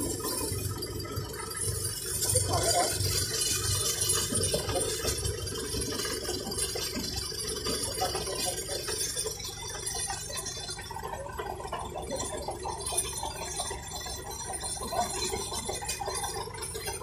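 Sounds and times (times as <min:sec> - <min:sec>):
boat engine running: 0:00.0 - 0:17.0.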